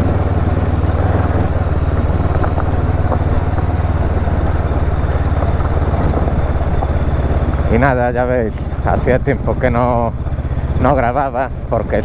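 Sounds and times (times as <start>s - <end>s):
motorcycle engine at low revs: 0.0s - 12.0s.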